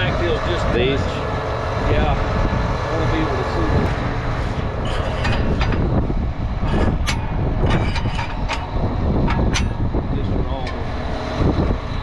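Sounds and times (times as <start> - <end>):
engine running steadily: 0.0 - 12.0
metal clicks and clanks: 4.8 - 6.0, 6.6 - 9.9, 10.5 - 10.9.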